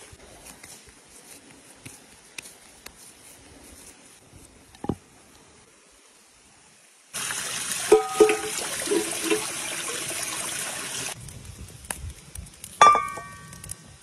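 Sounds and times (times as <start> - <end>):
water pouring into plastic jug: 7.2 - 11.2
wood fire crackling: 7.2 - 14.0
metal kettle clank: 7.9 - 9.1.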